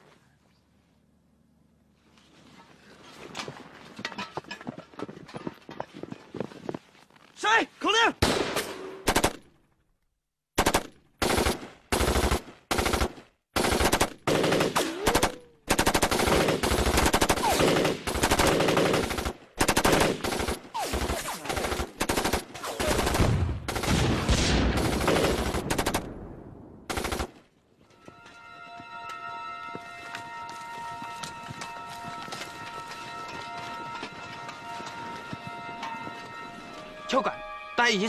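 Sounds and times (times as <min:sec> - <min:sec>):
gunfire: 0:08.2 - 0:09.5.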